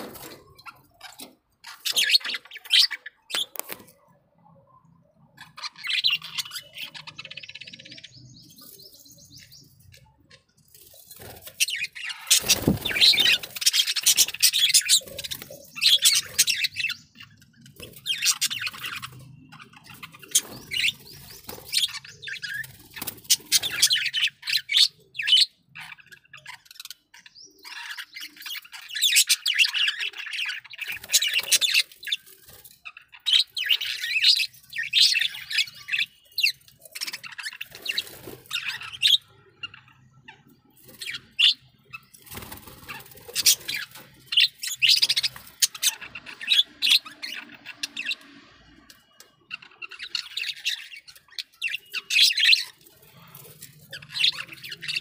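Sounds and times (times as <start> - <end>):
budgerigars chirping: 11.4 - 27.0, 33.0 - 39.9, 40.9 - 48.2, 49.5 - 53.2, 53.9 - 55.0.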